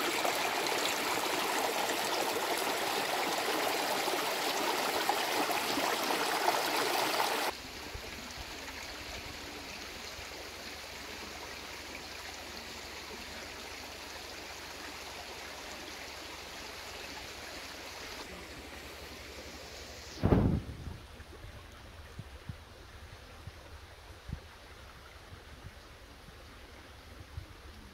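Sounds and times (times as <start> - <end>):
stream rushing over rocks: 0.0 - 19.9.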